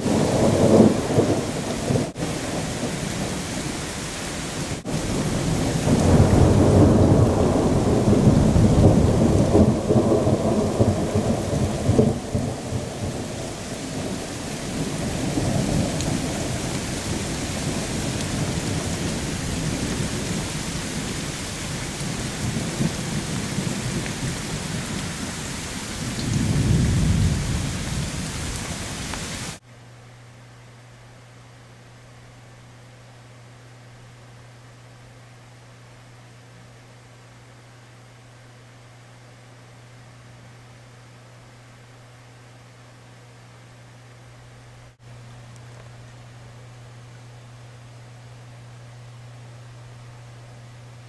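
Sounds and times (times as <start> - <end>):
heavy rain hissing: 0.0 - 29.6
thunder rumbling: 0.0 - 29.6.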